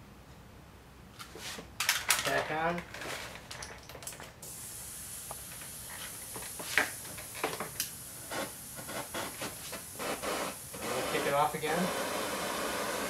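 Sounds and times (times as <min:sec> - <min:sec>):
gas torch hissing: 0:04.4 - 0:13.0.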